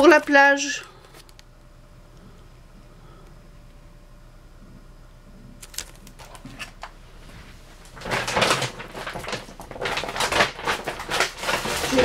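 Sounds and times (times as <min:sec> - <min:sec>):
packaging rustling and crinkling: 0:05.6 - 0:12.0.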